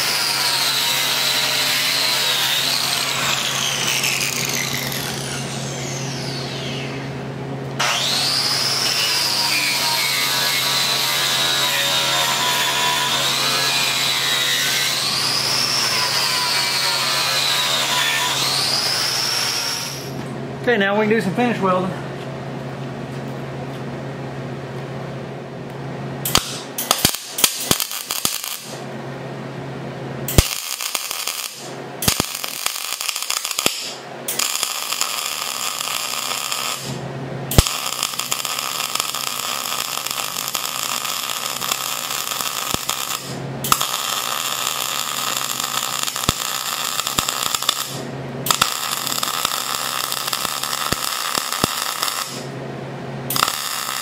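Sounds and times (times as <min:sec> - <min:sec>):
welder arc crackling: 0:00.0 - 0:05.4, 0:08.6 - 0:20.1, 0:26.3 - 0:28.9, 0:30.3 - 0:52.6, 0:53.3 - 0:54.0.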